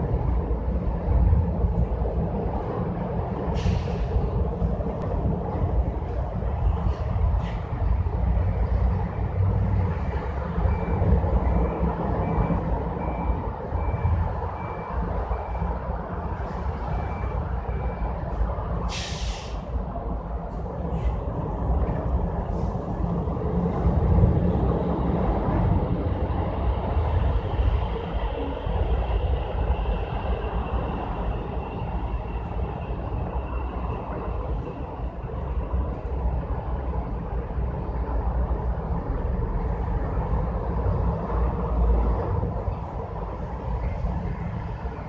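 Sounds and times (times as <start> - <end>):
vehicle engine rumble: 0.0 - 45.0
faint beeps: 10.5 - 15.8, 16.4 - 18.4
short loud hiss: 18.9 - 19.6.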